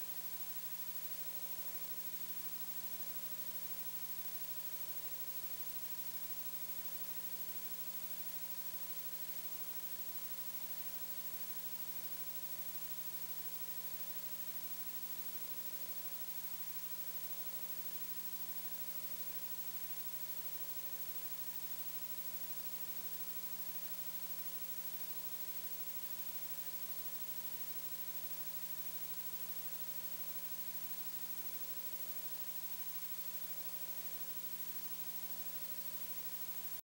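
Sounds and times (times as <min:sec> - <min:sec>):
low electrical hum: 0:00.0 - 0:36.8
steady hiss: 0:27.9 - 0:36.8.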